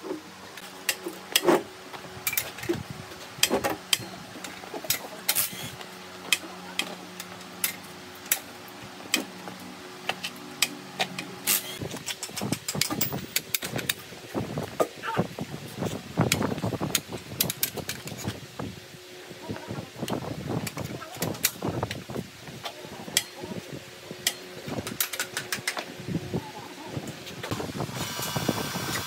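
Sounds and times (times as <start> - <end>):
hand tools clicking and knocking: 3.4 - 8.5, 16.3 - 18.2, 24.2 - 25.9.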